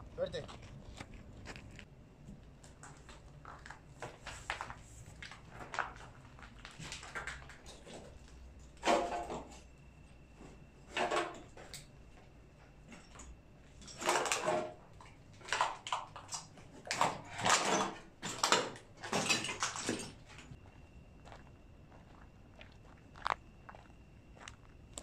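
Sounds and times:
footsteps crunching on gritty floor: 0.0 - 1.9, 20.5 - 25.0.

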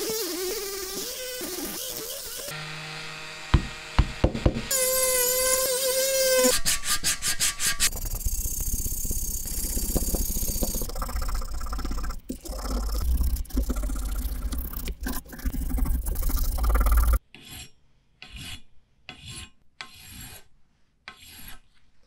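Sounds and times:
rotary tool wire brush whining: 4.7 - 6.6.

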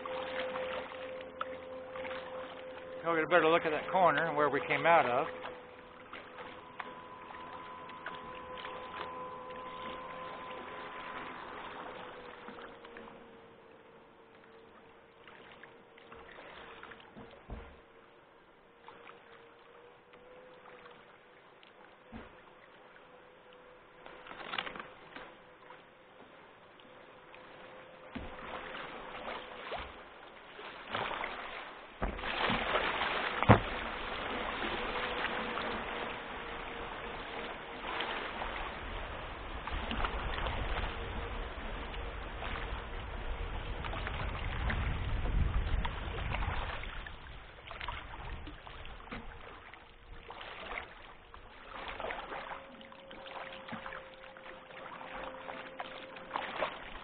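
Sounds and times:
river water rushing: 0.0 - 17.0, 27.0 - 44.9, 49.4 - 57.0
paddle strokes: 0.0 - 57.0.

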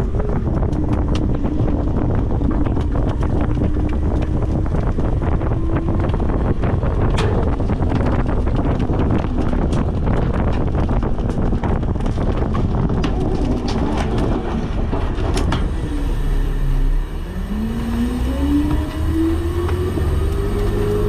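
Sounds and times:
garbage truck engine: 0.0 - 21.0
clatter of knocks and bangs: 7.0 - 15.7
engine revving with rising whine: 13.5 - 21.0.

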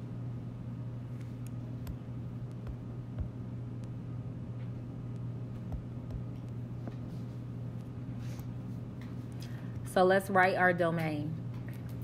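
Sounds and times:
low hum: 0.0 - 12.0
stylus tapping screen: 1.8 - 4.0, 5.2 - 6.6.

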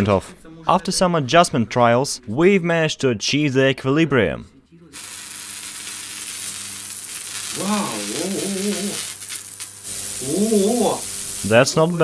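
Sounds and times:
corona discharge hiss: 5.0 - 12.0.

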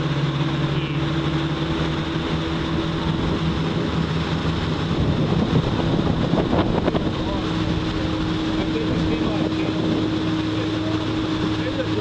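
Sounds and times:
motorboat engine running: 0.0 - 12.0
rush of wind and water: 0.0 - 12.0.

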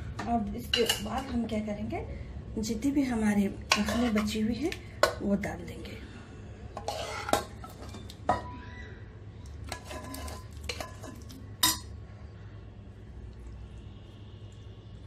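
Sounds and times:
spoon scraping steel bowl: 6.8 - 8.0, 9.7 - 11.9.

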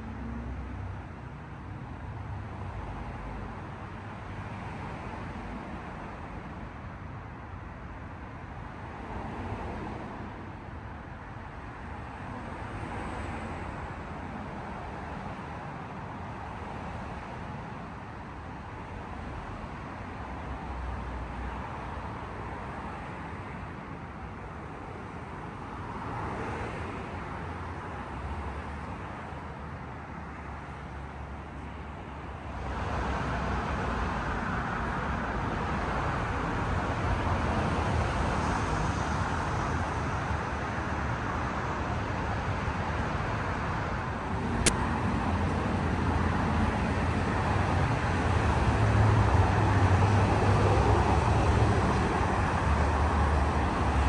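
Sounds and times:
cars passing: 0.0 - 1.0, 8.8 - 10.3, 18.8 - 54.0.

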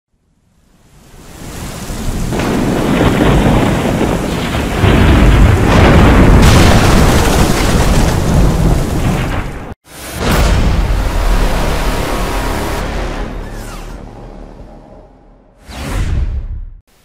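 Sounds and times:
heavy rain: 0.8 - 13.4
rolling thunder: 2.0 - 12.0.

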